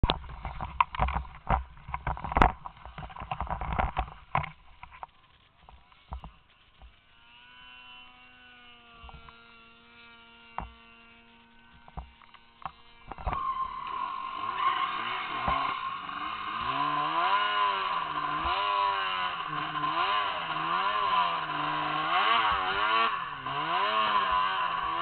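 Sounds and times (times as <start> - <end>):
distant snowmobile engine drone: 0.0 - 25.0
snowmobile engine revving: 5.8 - 25.0.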